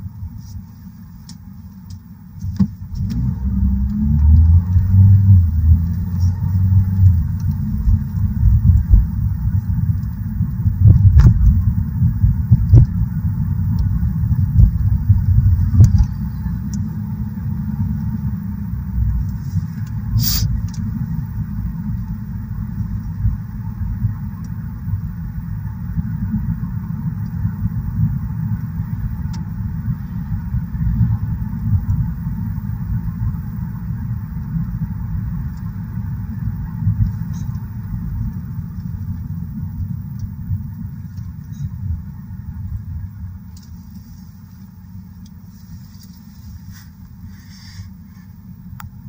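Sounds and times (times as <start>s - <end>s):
car road and engine rumble: 0.0s - 49.0s
faint clicks: 15.8s - 16.9s.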